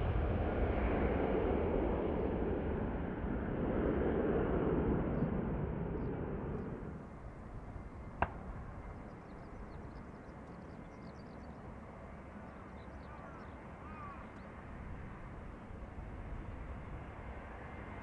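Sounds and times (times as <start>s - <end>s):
distant jet airliner rumble: 0.0s - 18.0s
faint bird chirps: 8.7s - 14.6s.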